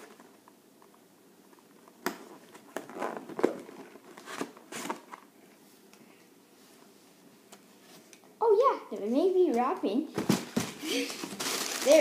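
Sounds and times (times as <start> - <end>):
tissue paper crinkling: 10.9 - 12.0.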